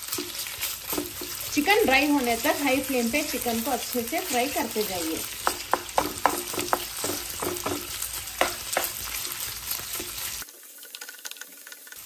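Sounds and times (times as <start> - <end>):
chicken sizzling in hot oil: 0.0 - 12.0
wooden spatula knocking pan: 0.1 - 2.0, 4.6 - 9.2.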